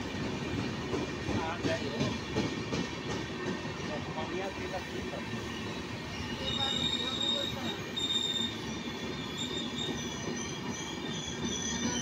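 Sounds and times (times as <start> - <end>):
train coaches rumbling past: 0.0 - 12.0
train wheel squeals: 4.6 - 12.0.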